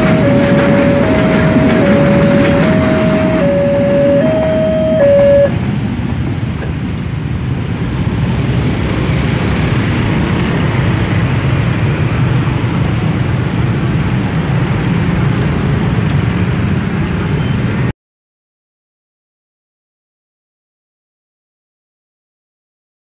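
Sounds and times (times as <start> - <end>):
two-tone crossing warning alarm: 0.0 - 5.6
car and motorcycle engines rumbling: 0.0 - 17.9.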